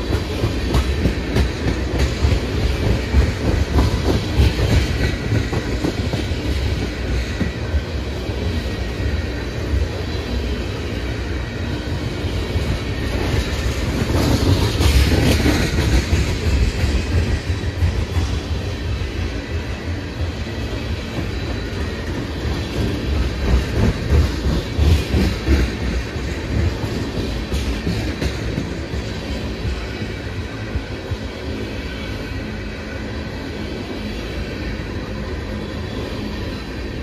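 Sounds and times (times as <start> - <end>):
train wheels clacking: 0.0 - 7.9, 12.5 - 20.0, 20.6 - 31.2
train low rumble: 0.0 - 37.0.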